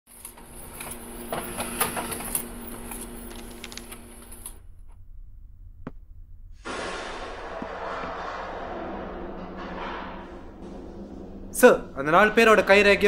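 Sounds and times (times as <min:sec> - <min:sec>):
laser printer hum and whine: 0:00.3 - 0:04.5.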